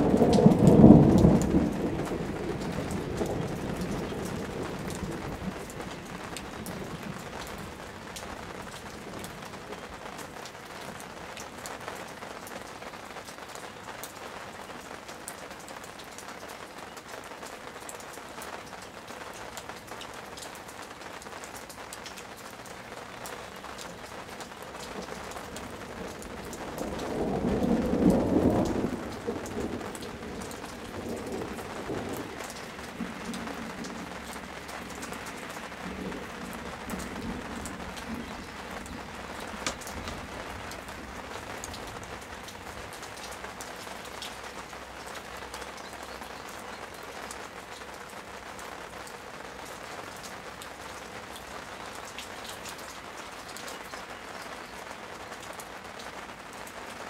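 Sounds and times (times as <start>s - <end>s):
thunder rolling: 0.0s - 8.0s, 24.9s - 42.3s
rain falling on leafy plants: 0.0s - 57.0s.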